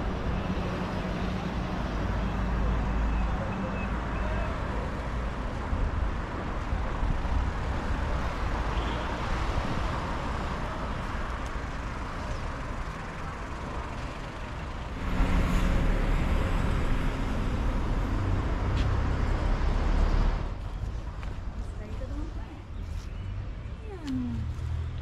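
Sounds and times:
passing cars with low rumble: 0.0 - 25.0.

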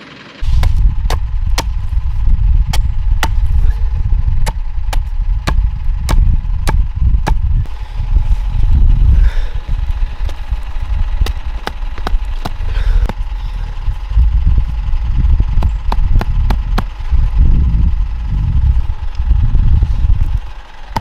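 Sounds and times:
steady low rumble: 0.2 - 21.0
hatchet chopping wood: 0.4 - 1.8, 2.7 - 3.6, 4.4 - 7.4, 11.2 - 13.2, 15.6 - 17.0.

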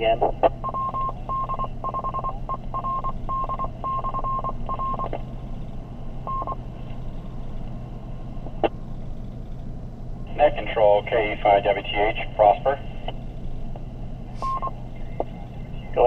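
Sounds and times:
radio tone beeps: 0.0 - 5.2, 6.3 - 6.6, 14.4 - 16.0
low hum and hiss: 0.0 - 16.0.

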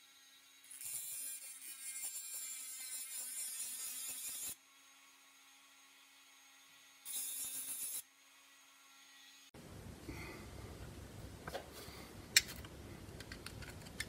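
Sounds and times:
rotary tool grinding metal screw: 0.0 - 5.0, 6.4 - 8.1.

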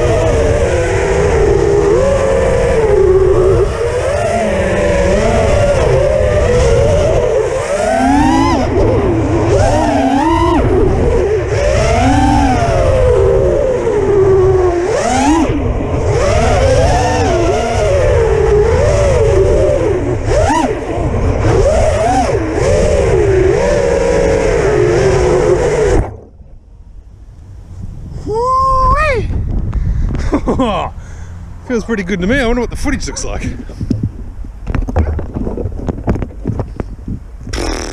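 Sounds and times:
quadcopter motors whining: 0.0 - 26.3
wind rumble: 0.0 - 37.9.

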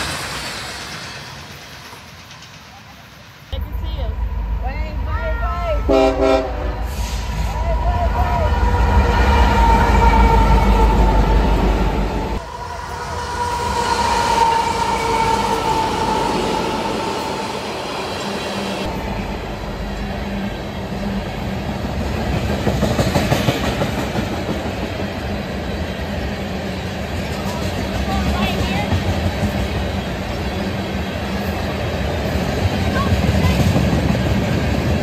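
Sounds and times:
train wheels clattering on rails: 0.0 - 3.5, 21.6 - 30.6, 31.2 - 35.0
train horn: 5.7 - 7.1.

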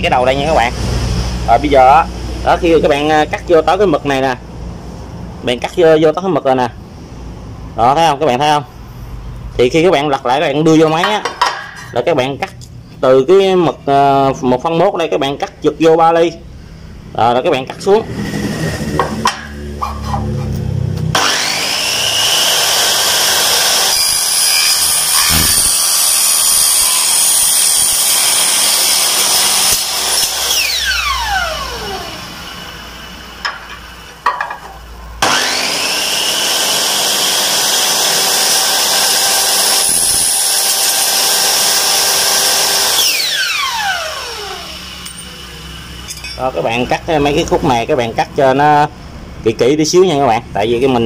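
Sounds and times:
miter saw cutting aluminium: 17.7 - 34.2, 35.2 - 47.5.

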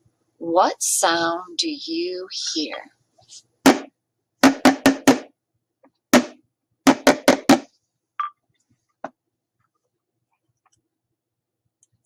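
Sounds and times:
drum beats: 3.6 - 5.3, 6.1 - 8.3.

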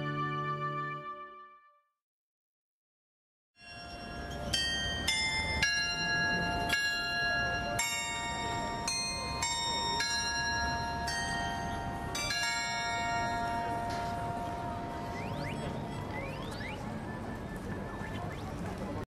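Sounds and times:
clock tower bells playing: 3.6 - 18.0
faint low city hum: 4.3 - 19.0.

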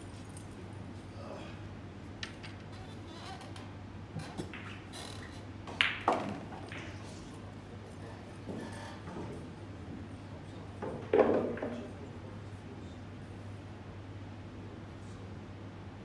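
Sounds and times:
pool balls clicking: 2.2 - 9.6, 10.8 - 12.0
cue tip striking ball: 5.7 - 7.1, 10.8 - 11.8.

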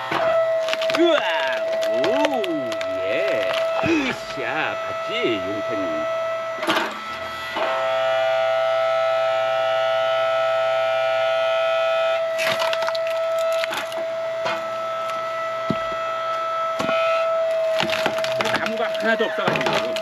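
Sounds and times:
wood cracking and splintering: 0.0 - 4.5, 12.4 - 20.0
hydraulic log splitter whining: 0.0 - 20.0.

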